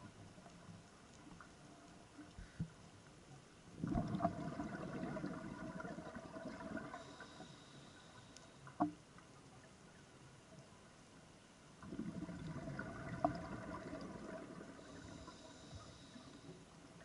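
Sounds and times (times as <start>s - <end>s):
gurgling bubbles from regulator: 3.8s - 7.1s, 11.8s - 15.3s.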